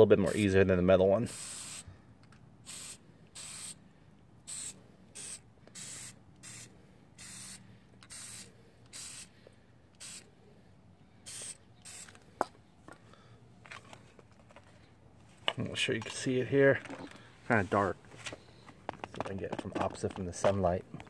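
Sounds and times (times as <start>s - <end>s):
aerosol spray hissing: 1.3s - 1.8s, 2.7s - 3.8s, 4.5s - 9.3s, 10.0s - 10.3s, 11.2s - 12.2s.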